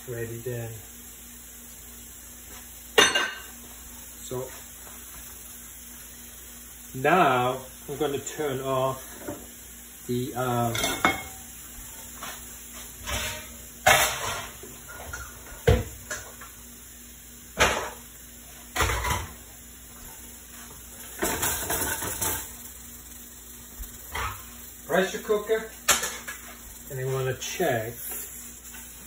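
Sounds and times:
cookware and utensils clattering: 2.9 - 3.6, 10.6 - 11.5, 13.0 - 16.4, 17.6 - 18.0, 18.7 - 19.4, 21.0 - 22.6, 24.1 - 24.6, 25.8 - 27.3.

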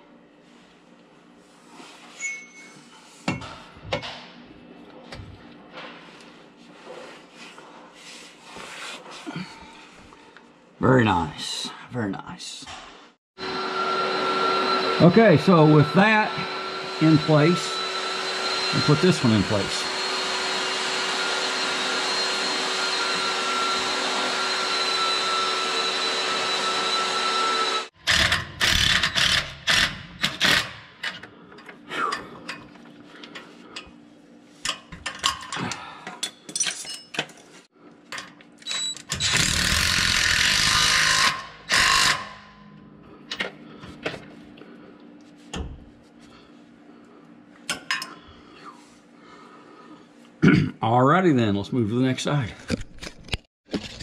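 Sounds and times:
machine whine: 13.4 - 30.6
power tool running: 13.4 - 30.9, 38.7 - 42.6
metal tools clanking: 34.6 - 37.5.

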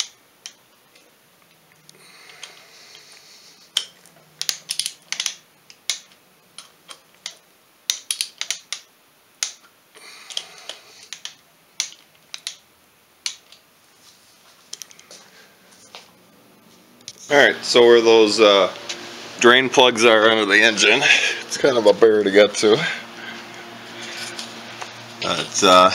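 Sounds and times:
torque wrench clicks: 3.8 - 9.6.

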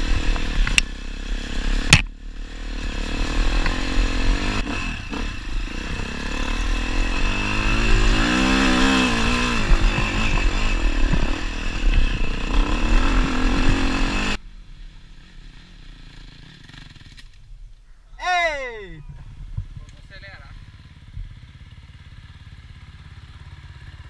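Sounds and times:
dirt bike engine revving: 0.0 - 17.3
wind and ride noise: 0.0 - 24.0.

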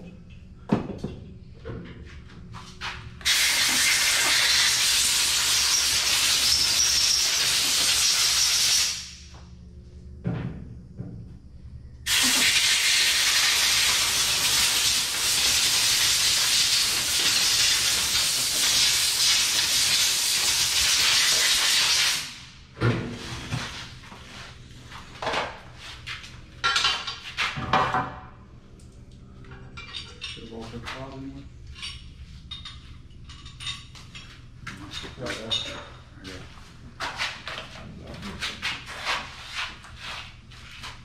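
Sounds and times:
compressed air hissing: 3.2 - 9.2, 12.1 - 22.5
metallic clinks of parts handled: 31.7 - 36.0.

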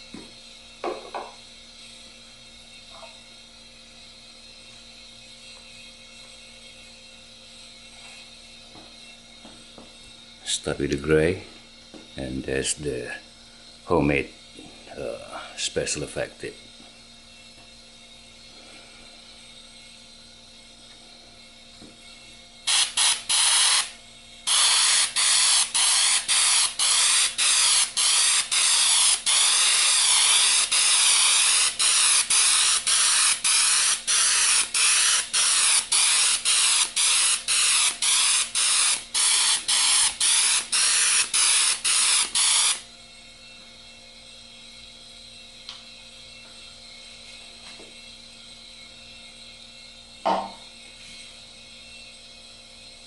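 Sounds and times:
airbrush spraying paint in pulses: 22.6 - 42.9.

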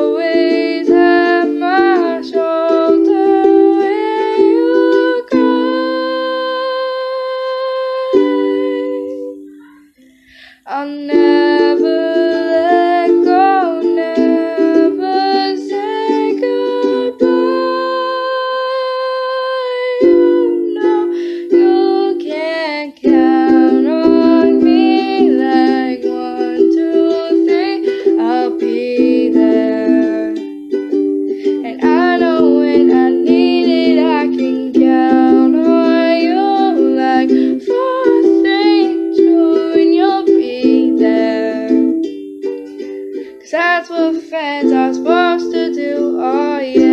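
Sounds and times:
girl singing: 0.0 - 46.9
strummed ukulele: 0.0 - 46.9.

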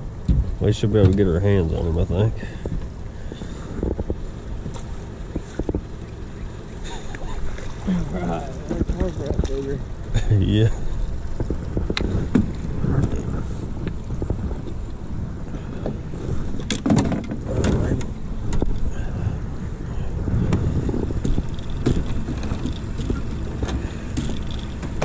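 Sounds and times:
wind buffeting microphone: 2.2 - 10.0, 10.7 - 25.0
gear knocking on boat deck: 20.5 - 25.0.

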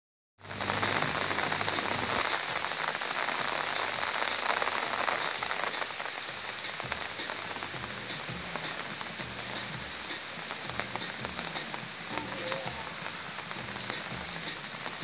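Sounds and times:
high hiss: 0.4 - 15.0
rain falling: 0.4 - 15.0.

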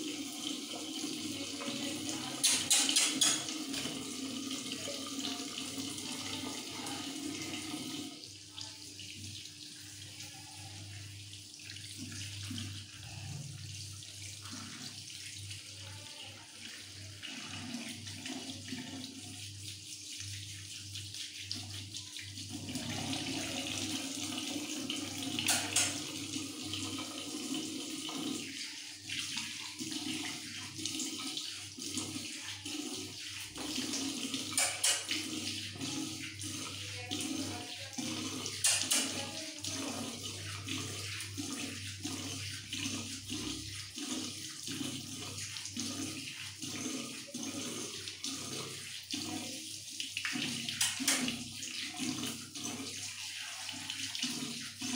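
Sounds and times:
tap water running into sink: 0.0 - 54.9.

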